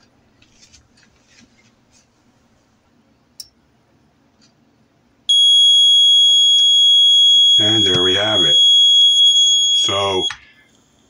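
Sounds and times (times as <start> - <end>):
multimeter continuity beep: 5.3 - 10.5.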